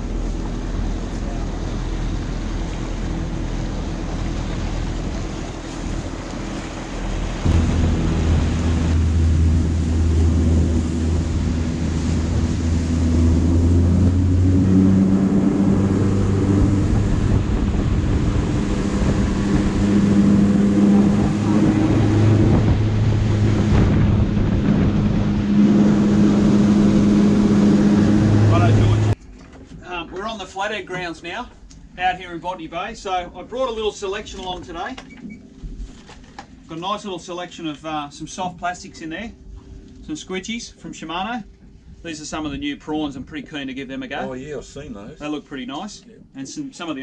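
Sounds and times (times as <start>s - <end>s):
wind buffeting microphone: 0.0s - 29.2s
motorboat engine running: 0.0s - 29.4s
water rushing past hull: 0.0s - 43.4s.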